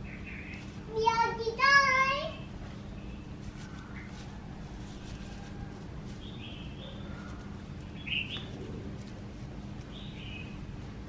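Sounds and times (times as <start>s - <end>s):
high bird chirps: 0.0s - 0.8s, 6.1s - 8.7s, 9.8s - 10.7s
low background hum: 0.0s - 11.0s.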